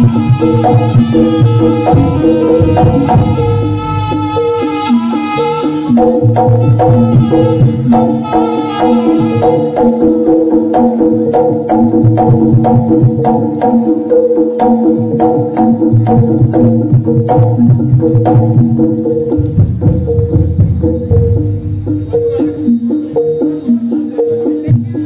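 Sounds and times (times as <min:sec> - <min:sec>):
metallophones and gongs melody: 0:00.0 - 0:25.0
hand drum slaps and strokes: 0:09.4 - 0:24.9.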